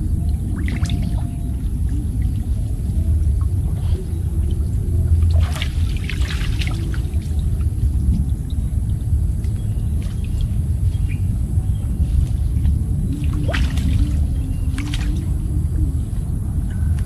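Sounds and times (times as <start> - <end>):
water splashing and trickling: 0.0 - 16.3
steady low rumble: 0.0 - 17.0
crackling splashes: 5.0 - 8.4.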